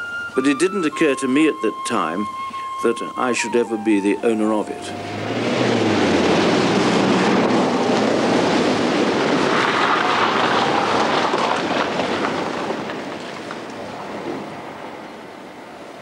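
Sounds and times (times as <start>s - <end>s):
car passing by: 4.8s - 13.0s.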